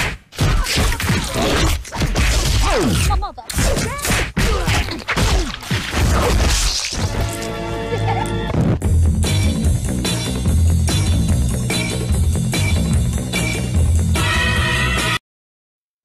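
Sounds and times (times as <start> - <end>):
wet thwacks and squelches: 0.0 - 7.6.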